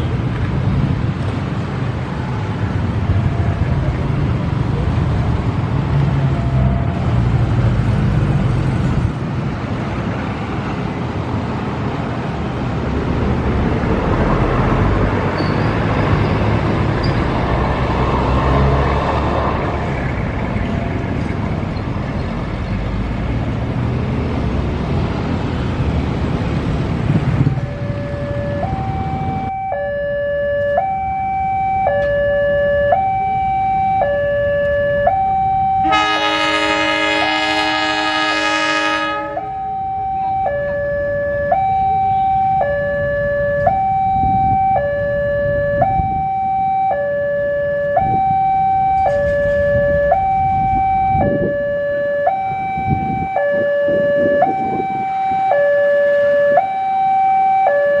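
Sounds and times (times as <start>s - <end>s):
low engine rumble: 0.1s - 29.7s
level-crossing two-tone alarm: 27.4s - 58.0s
locomotive horn chord: 35.8s - 39.6s.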